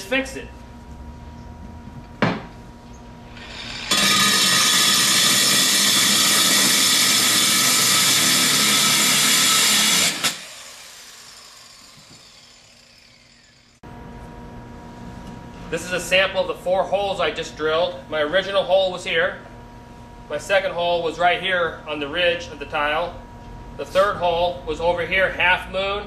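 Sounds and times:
motor winding down whine: 3.3s - 13.8s
angle grinder grinding concrete: 3.4s - 13.8s.

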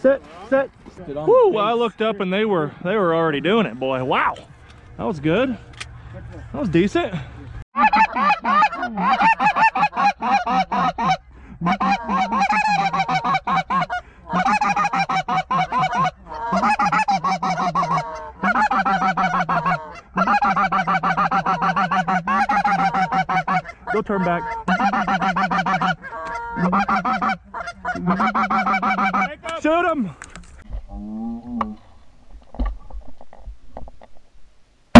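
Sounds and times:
geese honking: 7.8s - 29.5s.

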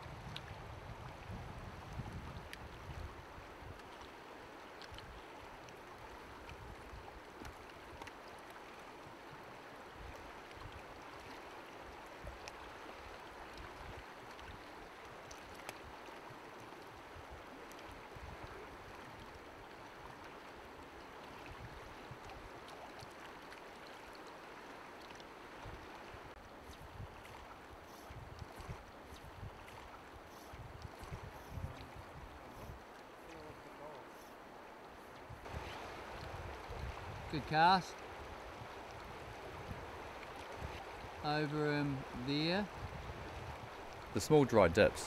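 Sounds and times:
river flowing over stones: 3.1s - 28.1s, 31.5s - 45.0s
faint clicks: 4.8s - 5.8s.

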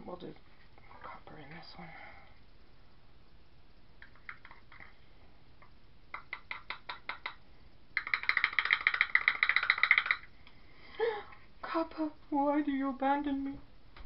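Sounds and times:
powder rattling in shaken jar: 8.0s - 10.3s.

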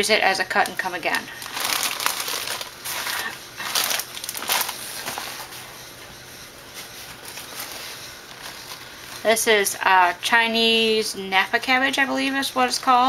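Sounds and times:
paper liner rustling and crinkling: 0.5s - 9.8s.

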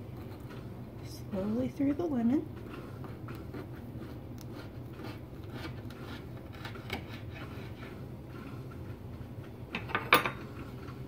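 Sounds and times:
steady low hum: 0.0s - 11.0s
knife sawing through lemon: 2.6s - 8.8s.

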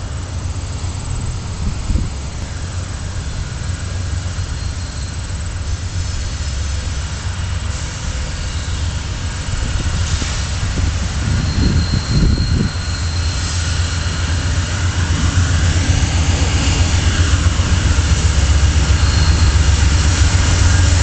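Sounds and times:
distant freight train rumble: 0.0s - 21.0s.

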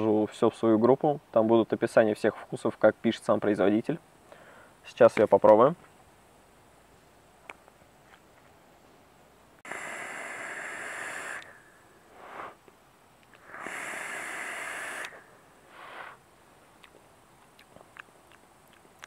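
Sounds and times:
breathy exhale: 4.2s - 4.8s, 9.6s - 12.6s, 13.4s - 16.2s
vape coil sizzling: 9.6s - 12.6s, 13.3s - 16.2s
air hissing through atomizer: 9.6s - 16.3s.

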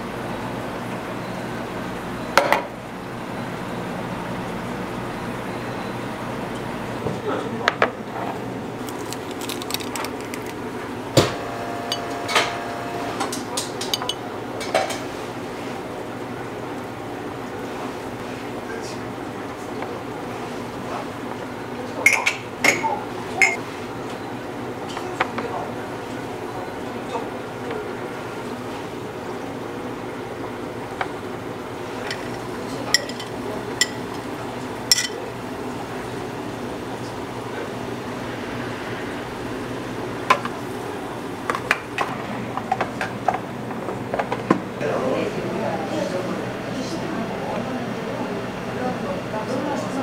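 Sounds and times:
steady background hum: 0.0s - 50.0s
glass ringing: 23.4s - 23.6s
scoop clinking against glass: 23.4s - 23.6s.

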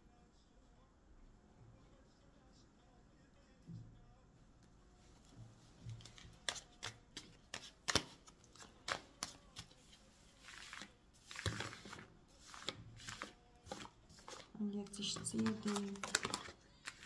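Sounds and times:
cards sliding swishes: 5.9s - 14.5s
cards clicking and snapping: 6.0s - 9.8s, 10.4s - 14.5s, 15.2s - 17.0s.

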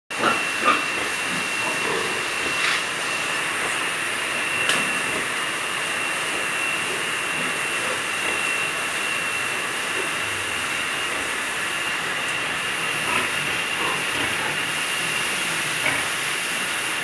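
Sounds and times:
steady hissing noise: 0.2s - 17.0s
thin high whine: 0.2s - 17.0s.

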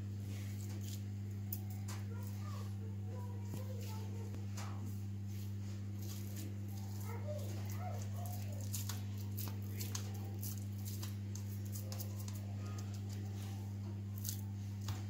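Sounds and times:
low electrical hum: 0.0s - 15.0s
hands patting food mixture: 5.9s - 15.0s.

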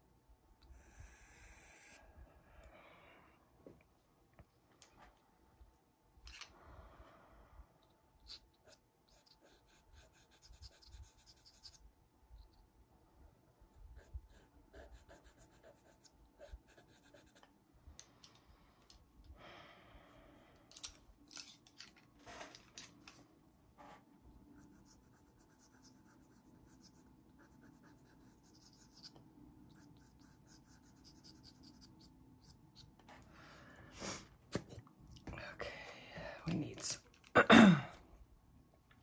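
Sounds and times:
pencil scratching on sanded paper: 8.3s - 11.8s, 13.7s - 17.5s, 24.5s - 32.6s.

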